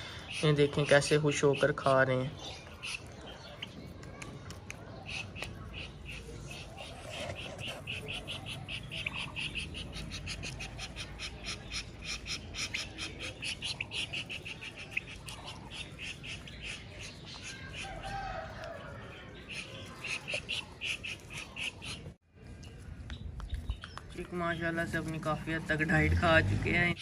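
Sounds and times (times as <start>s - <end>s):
chicks pecking plastic bowl: 2.5s - 22.0s.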